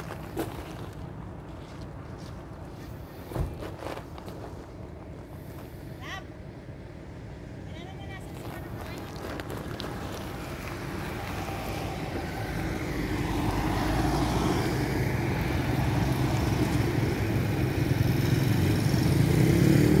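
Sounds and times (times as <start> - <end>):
diesel truck engine running: 0.0 - 20.0
motorcycle passing: 8.2 - 20.0.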